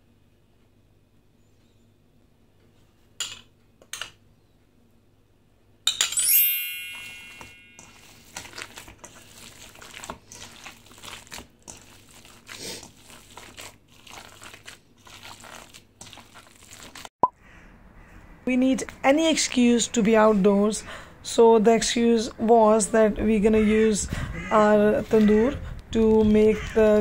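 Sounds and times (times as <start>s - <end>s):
spoon striking metal bowl: 5.9s - 8.0s
bowl ringing: 6.1s - 8.2s
hands squishing wet minced meat: 7.8s - 17.1s.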